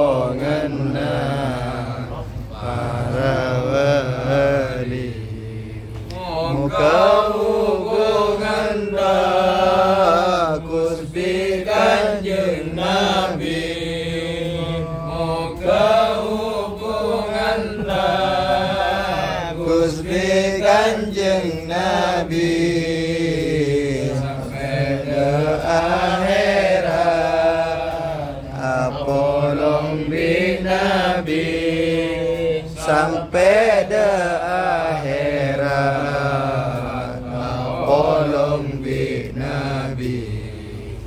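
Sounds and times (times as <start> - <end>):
men chanting a prayer: 0.0 - 41.0.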